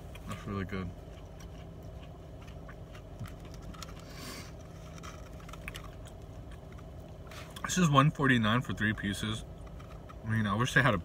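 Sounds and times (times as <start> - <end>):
car cabin hum: 0.0 - 11.0
chewing mouth clicks: 1.1 - 4.0.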